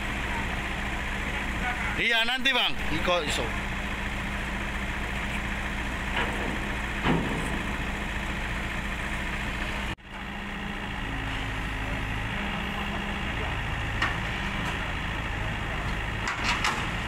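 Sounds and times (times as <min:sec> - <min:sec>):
excavator diesel engine idling: 0:00.0 - 0:17.0.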